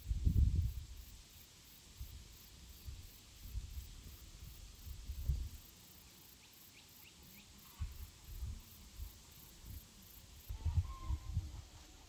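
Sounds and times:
faint insect pulsing: 0.0s - 12.0s
faint bird chirps: 10.5s - 11.4s.

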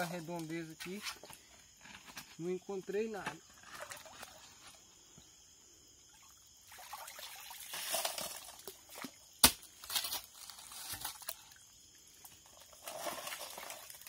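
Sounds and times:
muddy water splashing: 6.1s - 9.7s, 10.4s - 14.0s.

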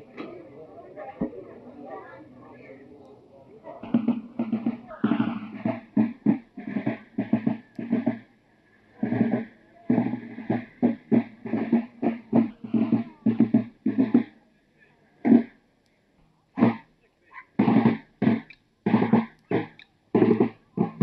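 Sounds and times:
field drums marching cadence: 3.7s - 14.5s, 15.2s - 15.7s, 16.6s - 21.0s.

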